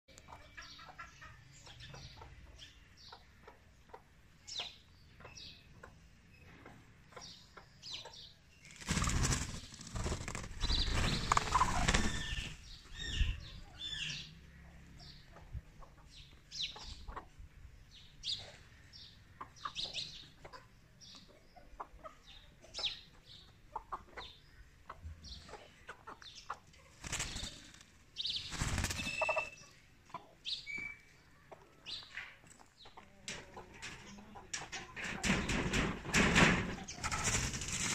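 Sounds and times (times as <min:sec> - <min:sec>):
loud wing flapping: 0:08.7 - 0:12.5, 0:28.5 - 0:29.2, 0:35.2 - 0:37.9
short high bird chirps: 0:28.9 - 0:29.8.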